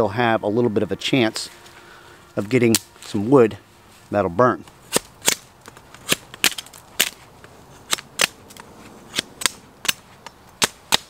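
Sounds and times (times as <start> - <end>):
machete chopping wet branch: 4.9 - 7.2, 7.9 - 8.4, 9.1 - 11.0.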